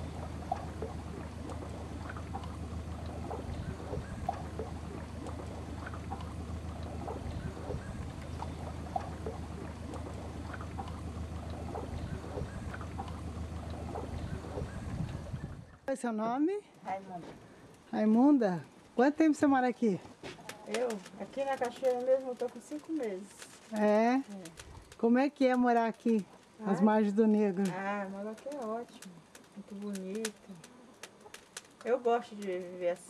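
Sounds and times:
water gurgles: 0.0s - 15.9s.

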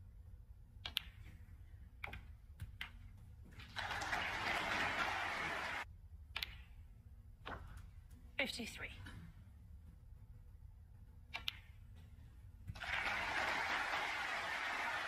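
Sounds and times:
audience applause: 3.7s - 5.8s, 12.8s - 15.0s.

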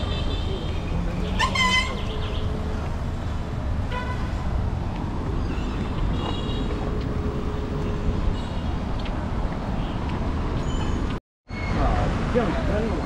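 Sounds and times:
city street traffic: 0.0s - 13.0s.

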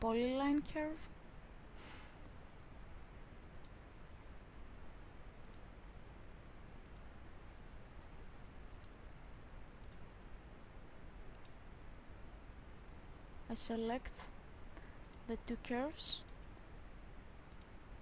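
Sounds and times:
low steady hiss: 0.0s - 18.0s
computer mouse clicks: 5.4s - 5.7s, 6.8s - 7.1s, 8.7s - 9.0s, 9.8s - 10.0s, 11.3s - 11.6s, 15.0s - 15.3s, 16.2s - 16.8s, 17.5s - 17.8s.

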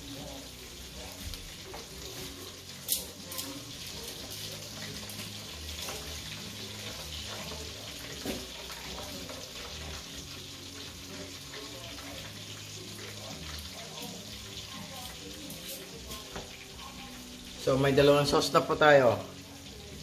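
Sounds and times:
pots hissing on gas hob: 0.0s - 20.0s
metal tongs clicking in pot: 2.8s - 3.6s.

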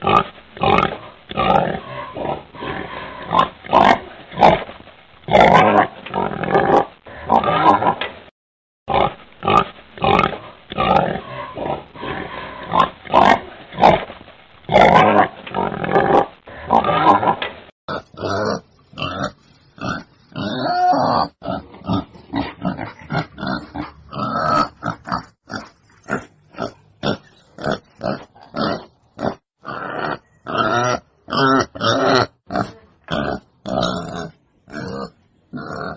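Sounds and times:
wild boar grunting: 8.9s - 14.1s, 14.7s - 35.9s.

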